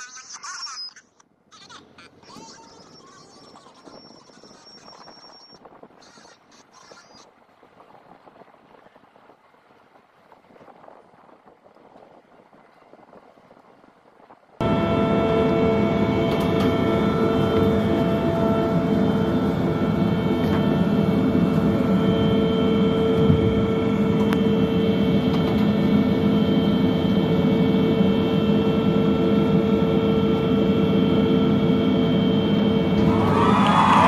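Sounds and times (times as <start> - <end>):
ship machinery drone: 14.6 - 34.0.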